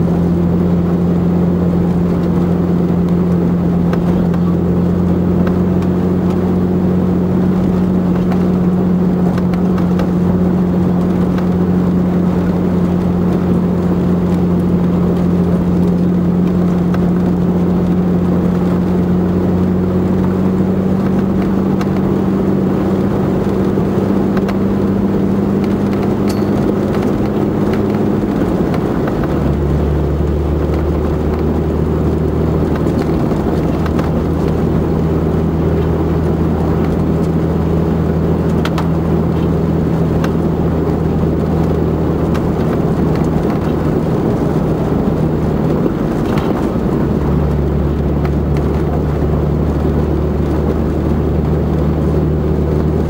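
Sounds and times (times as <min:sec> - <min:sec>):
tyres on gravel road: 0:00.0 - 0:53.0
vehicle engine droning: 0:00.0 - 0:53.0
stones ticking against vehicle: 0:25.5 - 0:51.9.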